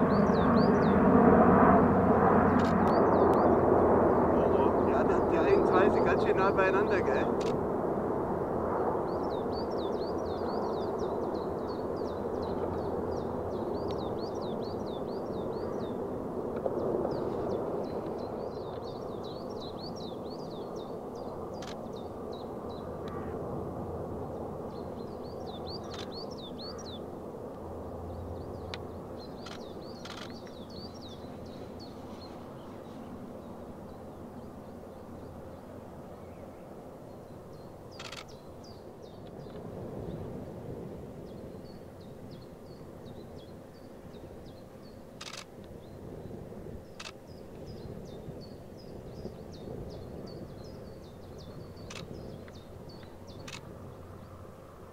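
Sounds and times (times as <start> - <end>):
small birds chirping: 0.0 - 1.2, 2.4 - 7.5, 9.0 - 23.4, 24.3 - 27.1, 28.0 - 40.3, 41.3 - 54.8
distant aircraft propeller rumble: 0.0 - 54.9
small bird chirping rapidly: 25.0 - 27.0, 28.6 - 32.4, 37.9 - 39.6, 49.2 - 54.4.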